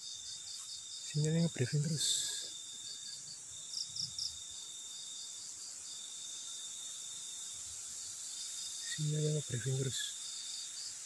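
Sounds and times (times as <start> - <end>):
loud cricket chirps: 0.0 - 11.0
night insects trilling: 0.0 - 11.0.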